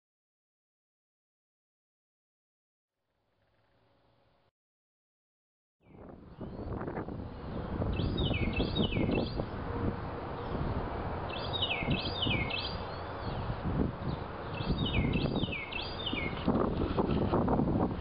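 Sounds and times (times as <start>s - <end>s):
songbird singing: 5.8s - 17.0s
wind rumbling on microphone: 5.8s - 18.0s.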